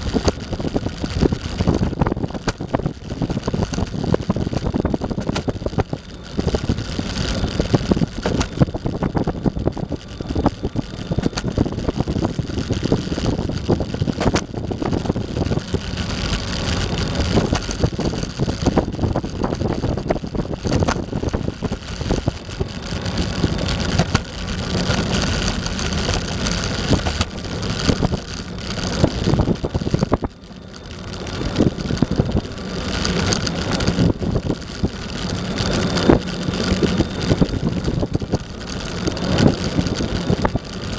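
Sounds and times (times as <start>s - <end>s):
skateboard wheels rumbling on pavement: 0.0s - 40.9s.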